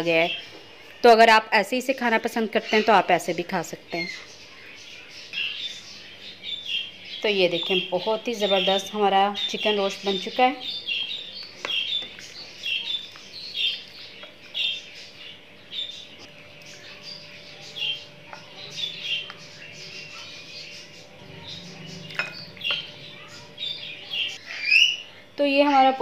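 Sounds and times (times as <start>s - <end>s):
small bird chirping: 3.9s - 25.3s.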